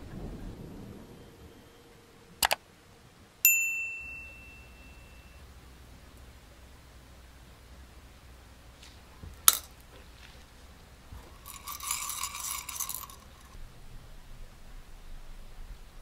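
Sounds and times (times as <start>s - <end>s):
small screws clinking in a bowl: 9.5s - 9.7s, 11.2s - 13.6s.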